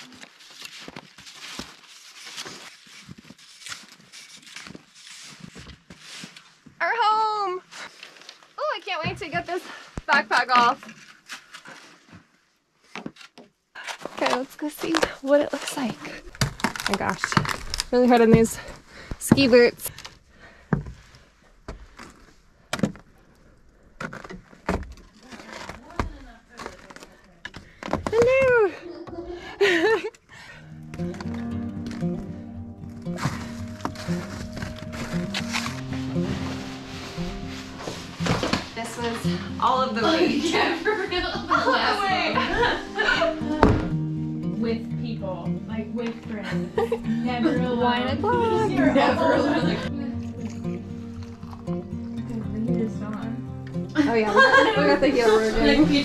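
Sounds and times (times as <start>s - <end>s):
ski poles planting in snow: 0.0s - 8.8s, 13.0s - 20.2s, 21.0s - 28.6s, 33.0s - 40.7s
footsteps crunching in snow: 31.9s - 39.2s.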